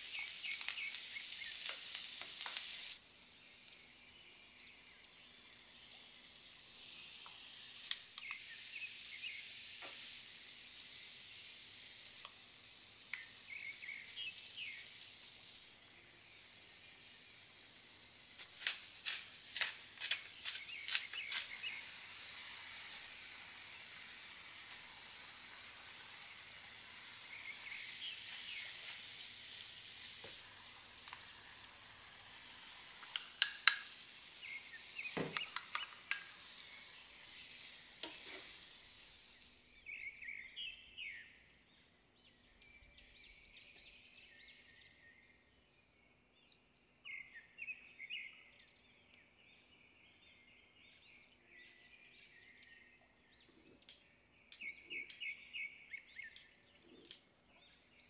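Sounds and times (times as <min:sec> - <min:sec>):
food sizzling in a frying pan: 0:00.0 - 0:40.3
pepper mill grinding: 0:18.3 - 0:23.2
wooden spoon clicking against pan: 0:33.0 - 0:33.9, 0:35.3 - 0:36.3.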